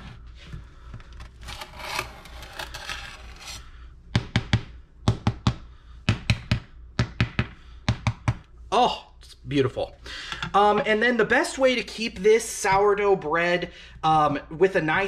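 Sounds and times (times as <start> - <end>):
bread knife sawing crust: 1.5 - 3.6.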